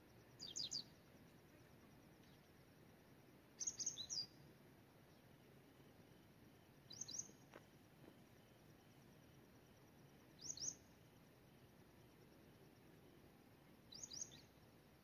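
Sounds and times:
bird chirping: 0.3 - 1.0, 3.6 - 4.4, 6.8 - 7.5, 10.3 - 11.0, 13.8 - 14.7.

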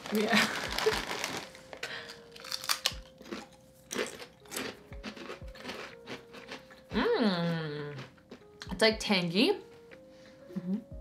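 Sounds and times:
potato chips crunching: 0.0 - 8.5.

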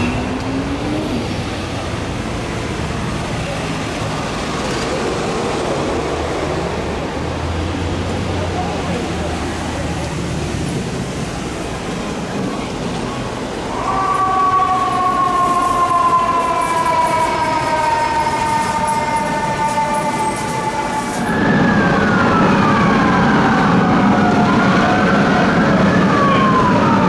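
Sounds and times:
sirens sweeping down and up: 13.6 - 27.0.

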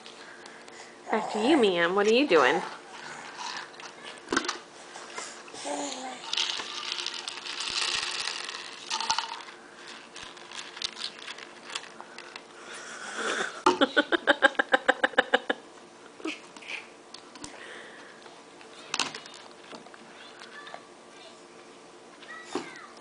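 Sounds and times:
snack puffs rattling in container: 3.3 - 4.2, 6.2 - 12.4.

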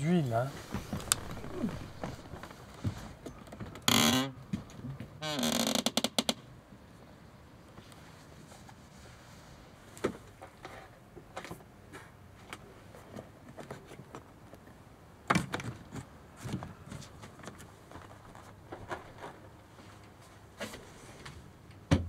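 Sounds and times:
rummaging among loose wiring: 0.0 - 3.9.

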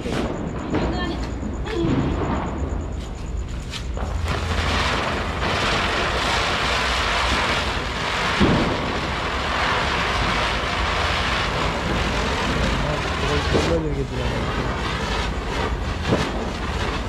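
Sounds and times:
ground-spinner firework hissing: 0.0 - 17.0
sharp firework cracks: 3.7 - 17.0.

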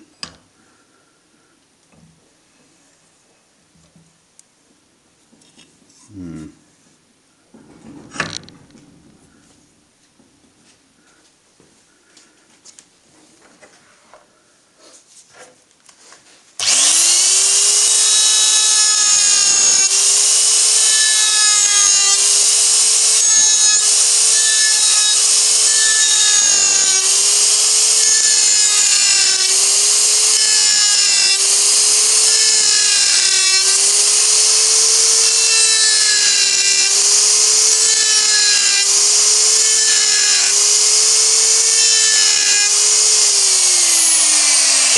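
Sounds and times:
die grinder whining: 16.6 - 44.9.

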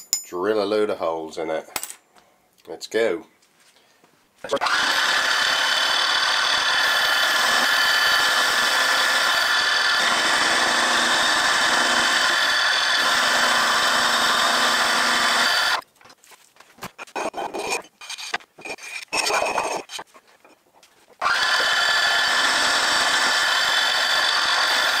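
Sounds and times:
end mill cutting steel: 4.6 - 15.8, 21.2 - 25.0.

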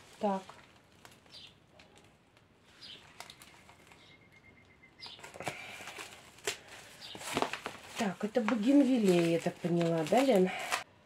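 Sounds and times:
cardboard rustling and scraping: 5.2 - 10.8.

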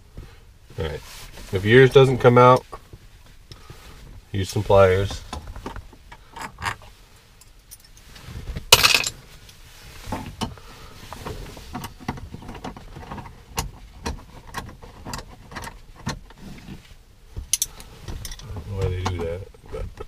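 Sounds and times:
tool rattle: 8.8 - 9.1
metal tools clicking and scraping: 17.5 - 18.5.

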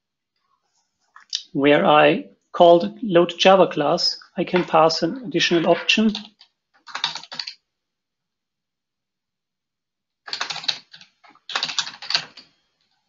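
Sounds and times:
typing on computer keyboard: 5.6 - 7.6, 10.3 - 12.6.

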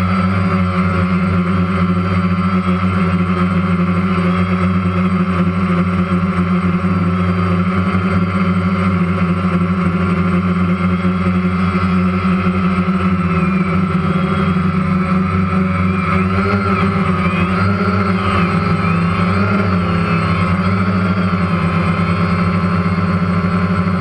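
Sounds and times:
boat motor running: 0.0 - 24.0.

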